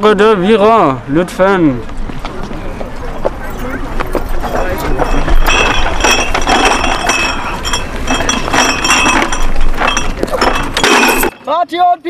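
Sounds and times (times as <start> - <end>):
glass bottles clinking in crate: 4.9 - 11.5.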